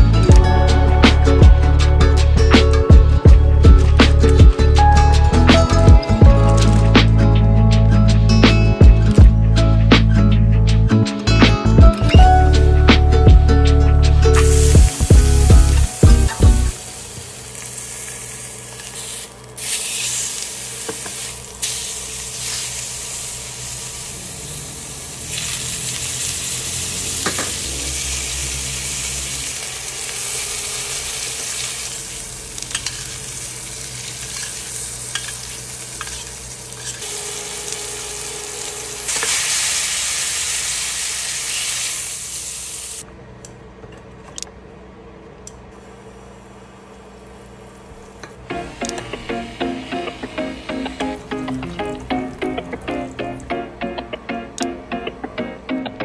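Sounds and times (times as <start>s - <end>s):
food sizzling in a frying pan: 14.3s - 43.0s.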